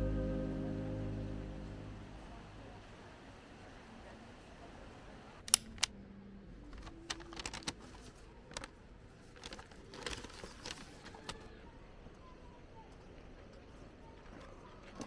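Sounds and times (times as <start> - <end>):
handling clicks and crackles: 6.7 - 11.5.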